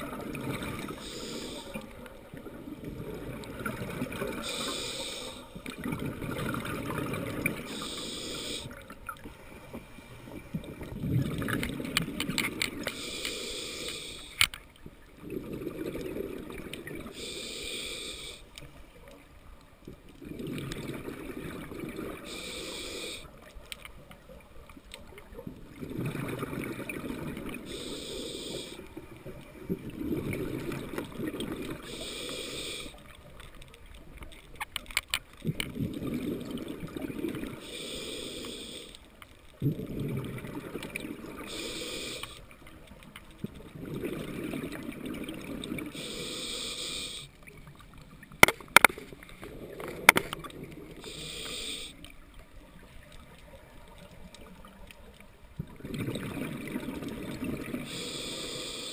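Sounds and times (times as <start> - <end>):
regulator hissing inhale: 0.8 - 1.9, 4.3 - 5.7, 7.6 - 10.3, 12.8 - 14.5, 17.1 - 18.8, 22.2 - 23.4, 27.6 - 29.0, 31.8 - 33.1, 37.6 - 39.1, 41.4 - 42.5, 45.9 - 47.4, 50.9 - 52.1, 57.8 - 58.9
bubbling exhaled air: 15.2 - 18.4, 20.2 - 23.2, 39.6 - 42.3.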